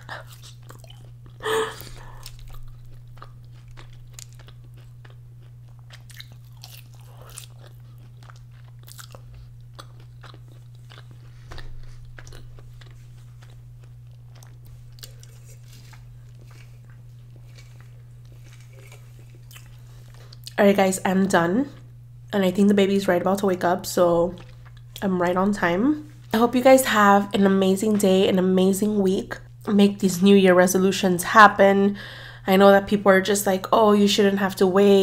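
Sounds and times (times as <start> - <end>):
mouth chewing and smacking: 0.0 - 20.6
steady low hum: 0.0 - 35.0.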